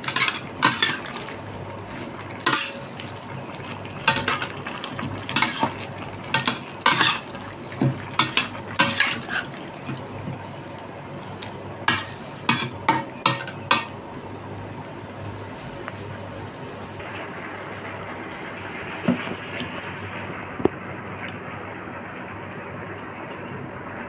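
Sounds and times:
spatula scraping metal wok: 0.0 - 1.1, 2.5 - 2.9, 5.3 - 5.8, 6.4 - 7.4, 8.2 - 9.5, 11.9 - 14.0.

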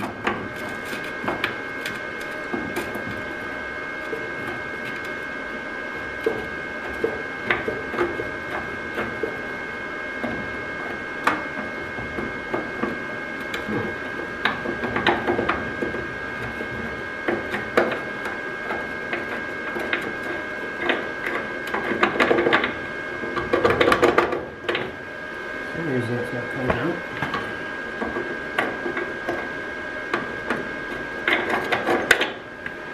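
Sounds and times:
arc welding crackling: 0.0 - 32.9
steady high-pitched hum: 0.0 - 32.9.

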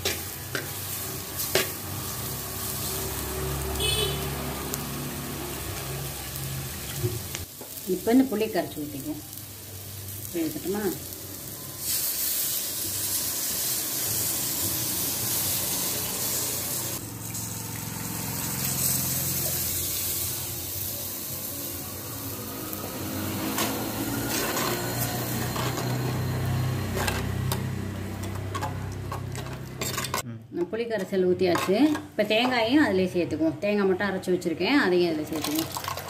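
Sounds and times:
liquid hissing in hot pan: 11.8 - 23.3.

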